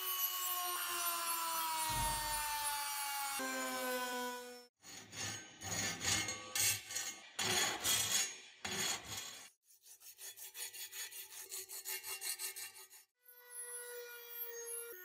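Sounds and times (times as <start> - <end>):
file rasping on steel blade: 4.8 - 13.2
sandpaper rubbing on steel: 7.5 - 13.1.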